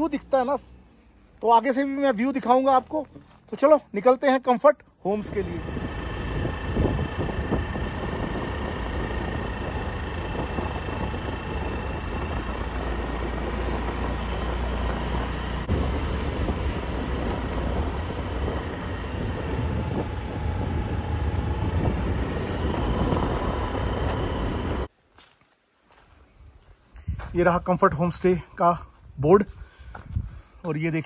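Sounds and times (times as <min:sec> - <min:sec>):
vehicle engine and road rumble: 0:05.2 - 0:24.9.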